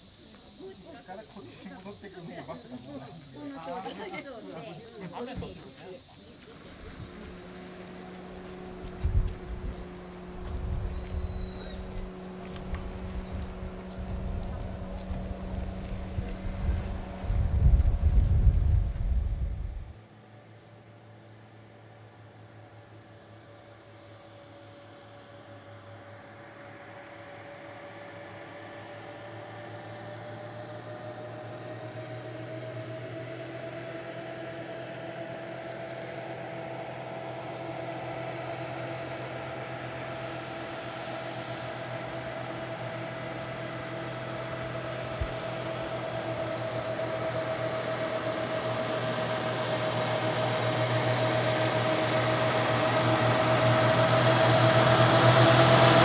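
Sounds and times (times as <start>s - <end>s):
bus diesel engine driving: 0.0s - 20.0s, 24.4s - 56.0s.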